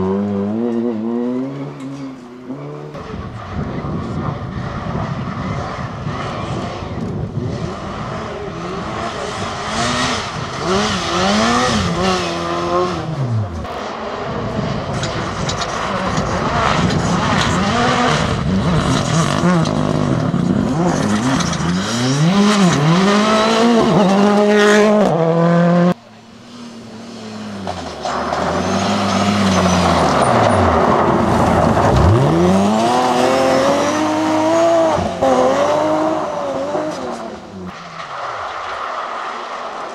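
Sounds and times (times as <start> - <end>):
rally car engines revving: 0.0 - 39.9
tyres on loose gravel: 27.3 - 33.2, 36.8 - 39.9.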